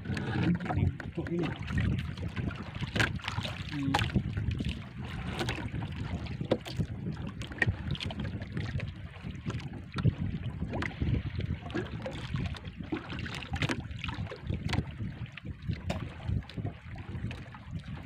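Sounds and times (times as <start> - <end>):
water slapping against boat hull: 0.0 - 18.0
water splashes: 0.0 - 18.0
wind buffeting microphone: 0.0 - 18.0.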